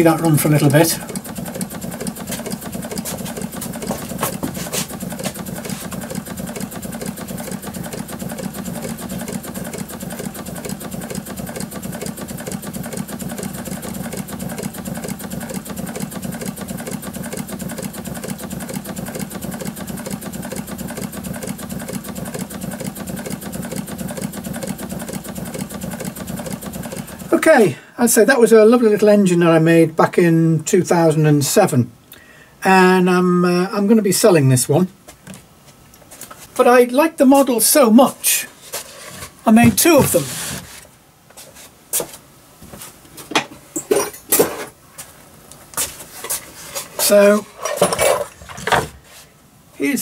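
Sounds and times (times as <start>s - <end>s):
model steam engine running on air: 0.0s - 27.6s
clatter of moving parts: 0.4s - 27.4s, 43.2s - 44.8s, 45.8s - 49.0s.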